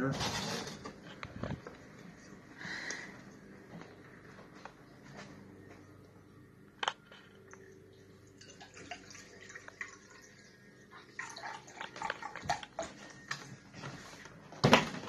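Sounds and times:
liquid dribbling and splashing: 8.2s - 13.2s.

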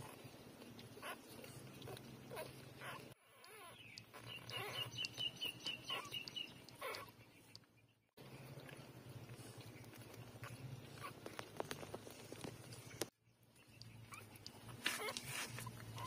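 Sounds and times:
puppies suckling: 0.0s - 16.0s
puppy squeaks: 2.3s - 7.2s, 14.1s - 16.0s.

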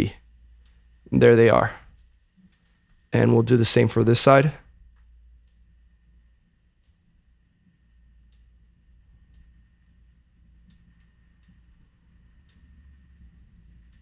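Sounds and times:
low steady hum: 0.0s - 14.0s
computer mouse clicks: 1.9s - 2.8s, 10.6s - 11.6s.

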